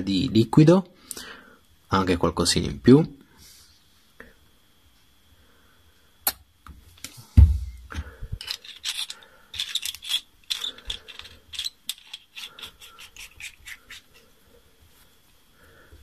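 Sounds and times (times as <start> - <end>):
dull thump: 7.4 - 8.0
metal clicks and scraping threads: 8.3 - 14.2.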